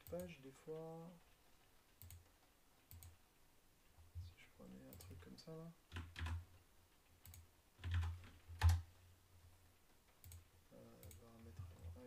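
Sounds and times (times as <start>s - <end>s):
keyboard keystrokes and clicks: 0.0s - 3.2s, 4.8s - 5.3s, 5.9s - 6.6s, 7.2s - 8.9s, 10.0s - 12.0s.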